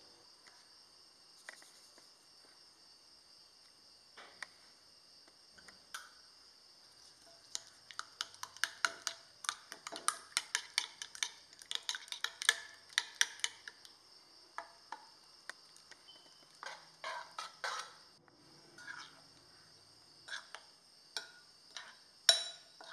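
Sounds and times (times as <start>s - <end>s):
bread cubes scraping off plate: 16.5s - 18.1s
spoon clinking against glass bowl: 21.2s - 22.9s.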